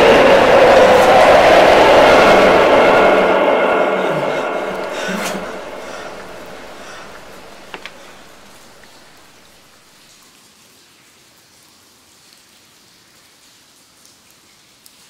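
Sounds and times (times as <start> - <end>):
water dripping in a cave: 10.0 - 15.0.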